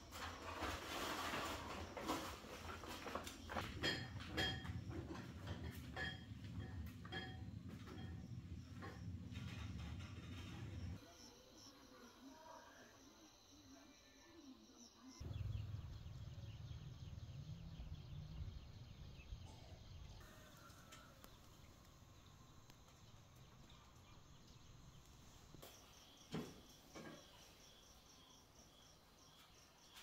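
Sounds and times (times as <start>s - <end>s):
insects chirping: 0.0s - 30.0s
low rumble: 15.2s - 19.5s.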